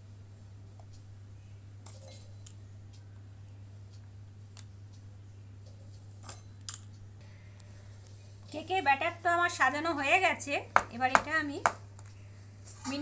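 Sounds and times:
steady low hum: 0.0 - 13.0
faint clicks and taps: 0.7 - 1.1.

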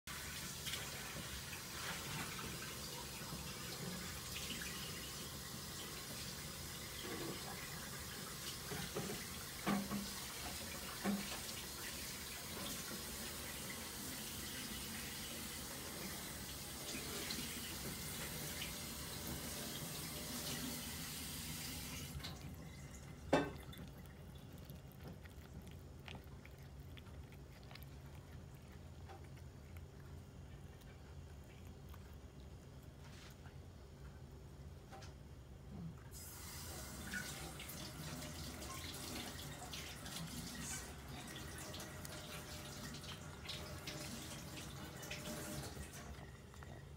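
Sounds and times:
cat eating from ceramic bowl: 21.8 - 33.6, 38.7 - 46.9.

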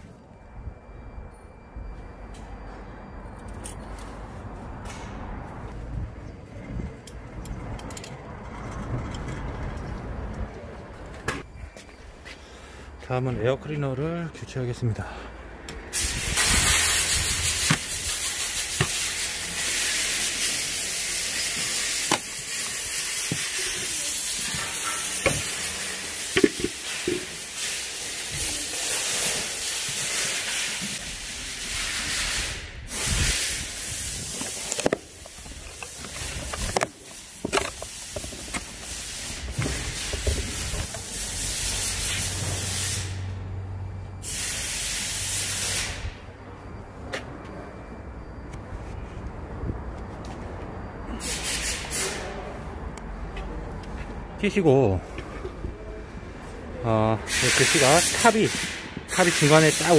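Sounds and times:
compressed air hissing: 15.9 - 43.4, 44.2 - 46.3, 51.1 - 52.4, 57.2 - 59.9.

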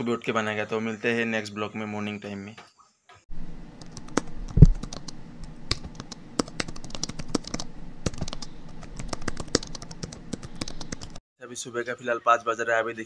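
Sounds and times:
keyboard typing clicks: 3.8 - 11.2.

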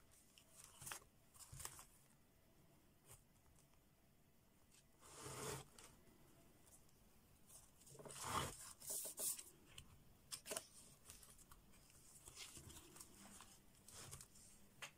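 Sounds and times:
paper pages turning: 0.2 - 2.0, 7.5 - 14.6.

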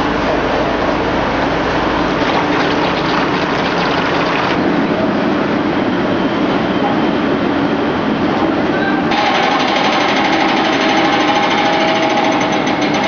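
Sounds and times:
construction machinery din: 0.0 - 5.6.

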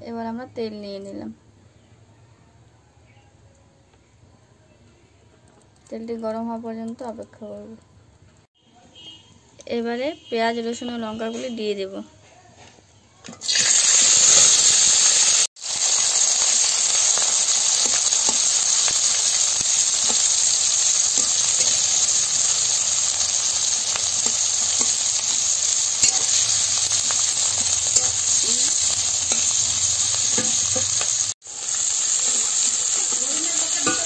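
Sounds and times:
vegetables sizzling in hot oil: 13.4 - 34.0
metal spatula scraping: 17.1 - 34.0.

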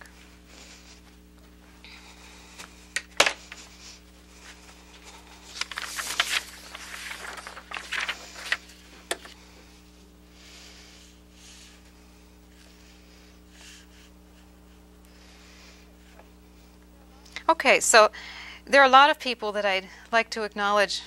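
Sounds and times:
steady electrical hum: 0.0 - 21.0
plastic sheet rustling and clattering: 4.4 - 9.4.

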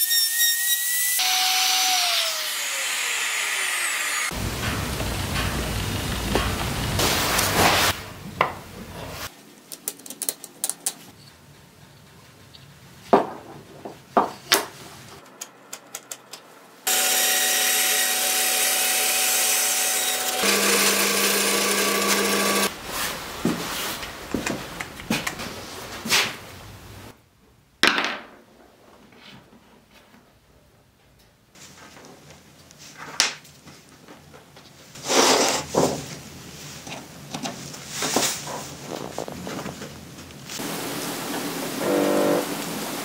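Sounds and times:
wooden pieces clicking on workbench: 9.7 - 11.1
bandsaw cutting branch: 16.9 - 22.7.

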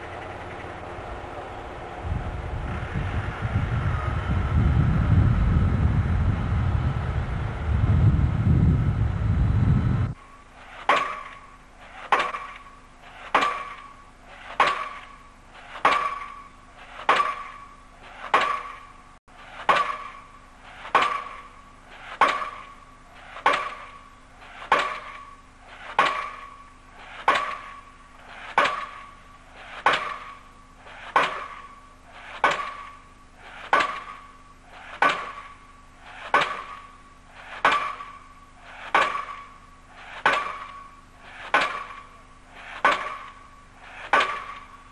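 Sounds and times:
pile hammer blows ringing: 10.9 - 14.0, 15.8 - 19.0.

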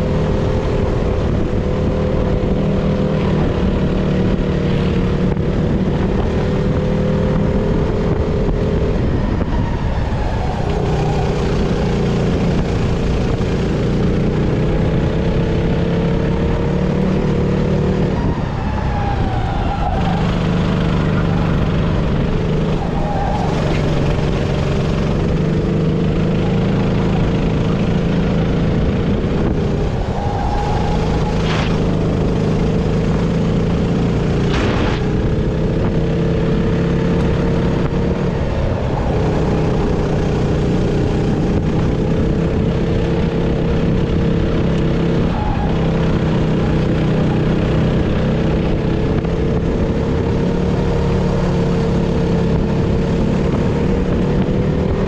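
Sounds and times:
kart engine running hard: 0.0 - 55.0.

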